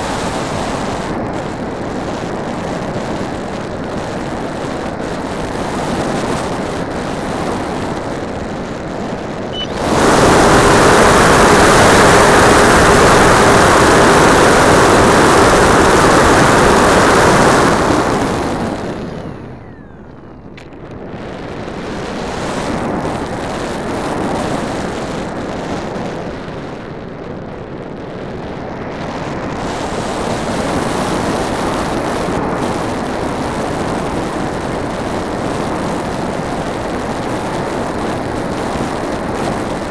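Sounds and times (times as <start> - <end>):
model plane motor and propeller: 0.0 - 39.9
airflow rushing: 9.6 - 20.0.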